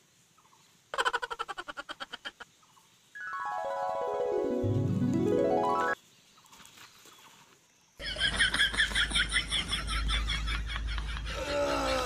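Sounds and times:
rising gliding comic tone: 3.2s - 6.0s.

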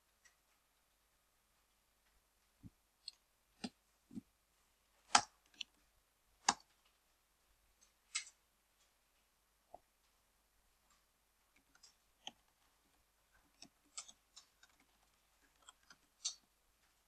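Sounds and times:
keyboard and mouse clicks: 13.4s - 17.0s.

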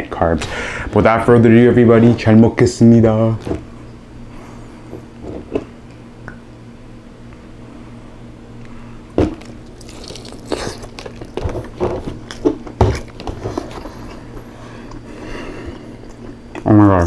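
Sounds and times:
chicken pulled apart by hand: 9.4s - 11.5s
moist biting and chewing: 9.4s - 15.1s.

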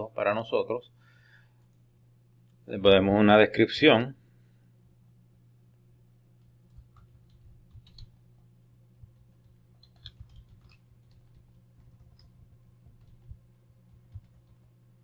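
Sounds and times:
steady low hum: 0.0s - 15.0s
keyboard typing: 6.4s - 8.2s, 9.0s - 14.7s.

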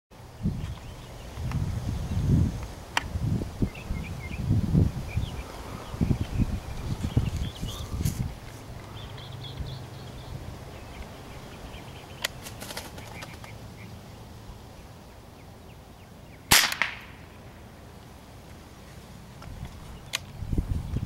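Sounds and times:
smaller crack: 16.5s - 17.2s
rifle shot crack: 16.5s - 17.3s.

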